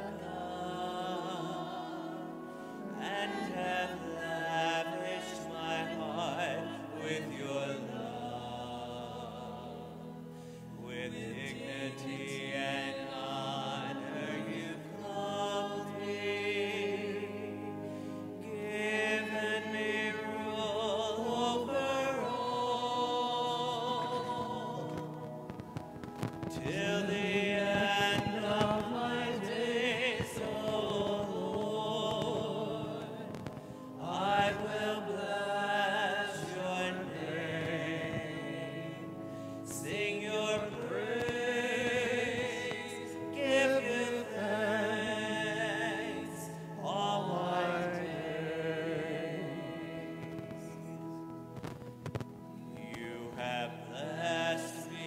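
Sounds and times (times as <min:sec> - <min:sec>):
cantor singing with vibrato: 0:00.0 - 0:51.4, 0:52.6 - 0:55.0.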